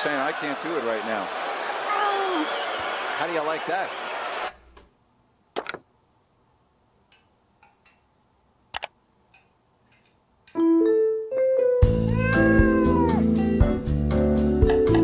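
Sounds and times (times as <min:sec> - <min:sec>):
sharp clicks: 0:08.7 - 0:10.2
piano music: 0:10.6 - 0:15.0.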